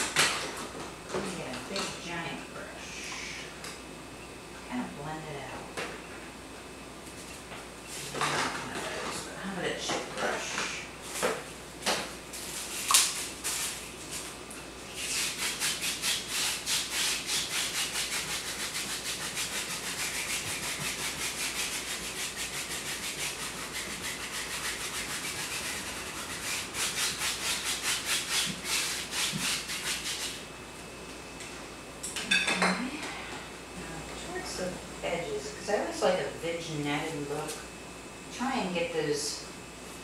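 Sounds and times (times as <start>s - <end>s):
paintbrush scrubbing canvas: 12.4s - 14.3s, 14.9s - 30.4s.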